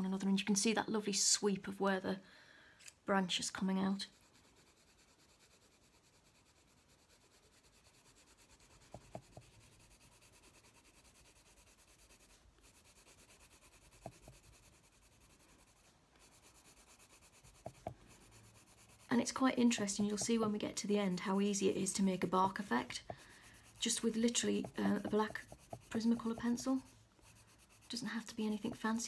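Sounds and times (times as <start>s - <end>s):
coloured pencil shading on paper: 3.9s - 29.0s
soft pencil ticks: 8.8s - 9.5s.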